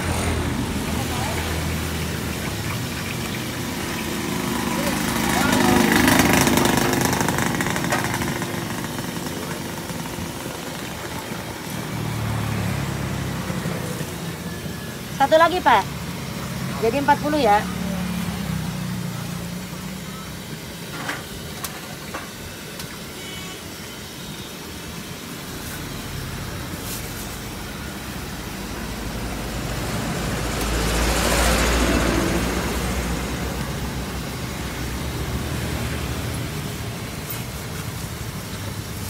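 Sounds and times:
vehicle passing close: 0.0 - 19.9, 28.3 - 38.2
traffic engine hum: 0.0 - 39.0.

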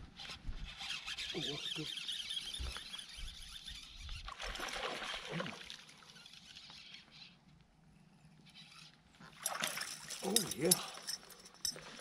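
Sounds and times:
soft water and tackle noise: 0.0 - 12.0.

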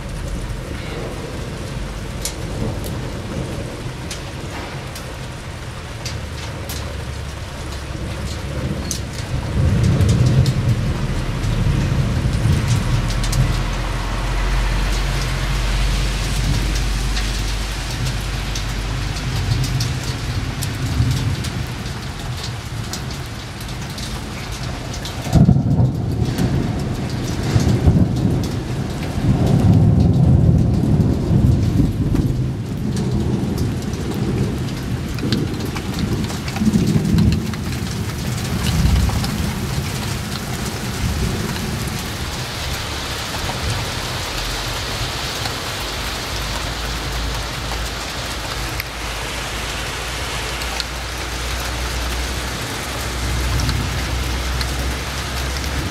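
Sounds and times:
heavy rain hissing: 0.0 - 55.9
thunder rumbling: 0.0 - 55.9.

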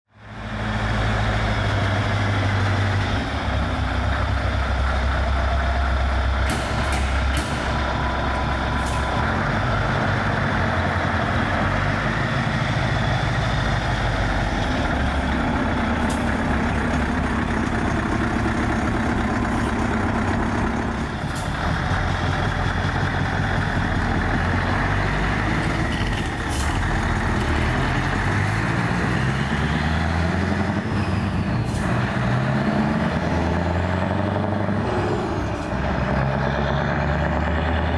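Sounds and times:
diesel truck engine running: 0.2 - 37.9.

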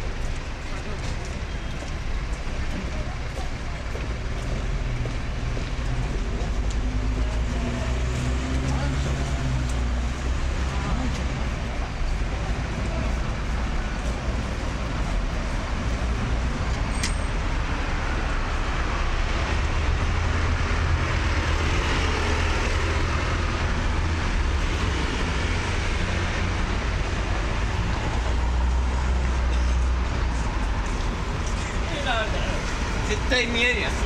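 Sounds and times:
low engine rumble of idling vehicles: 0.0 - 7.4
street traffic: 0.0 - 34.0.

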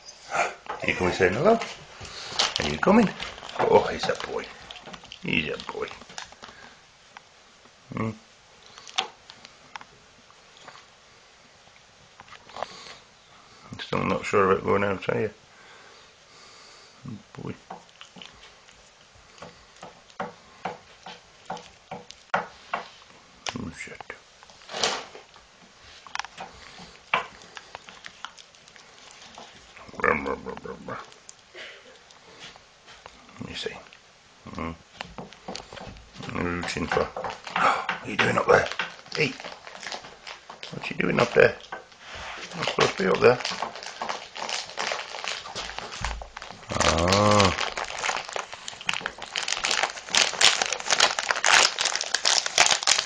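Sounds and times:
dog rustling through bedding: 42.0 - 46.7
short low vocal sound: 46.7 - 47.6.

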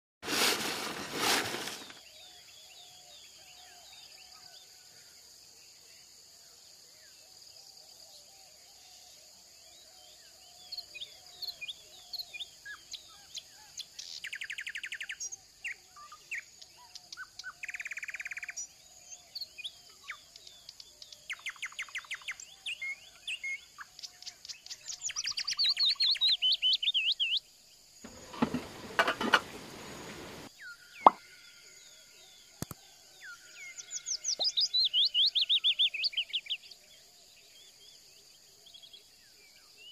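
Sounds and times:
songbirds chirping and trilling: 1.6 - 39.9
steady high hiss: 28.1 - 30.5.

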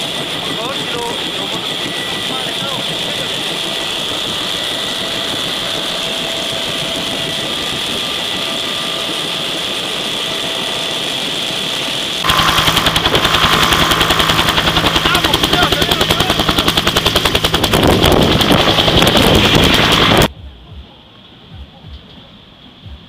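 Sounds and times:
helicopter cabin turbine rush: 0.0 - 20.3
helicopter rotor beating: 0.0 - 20.3.

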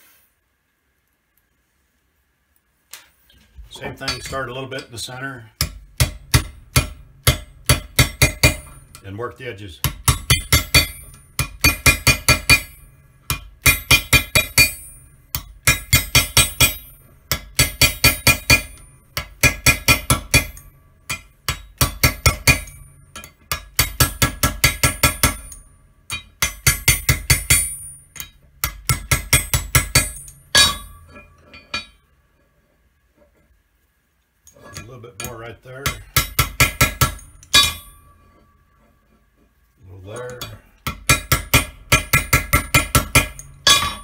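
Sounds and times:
hammer striking metal punch: 3.8 - 5.0, 5.6 - 9.0, 9.8 - 32.0, 34.6 - 38.7, 40.2 - 44.0.

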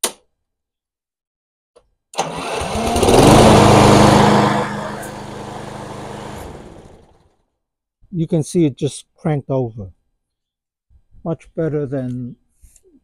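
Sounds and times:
lawn mower engine cranking: 2.2 - 7.2.

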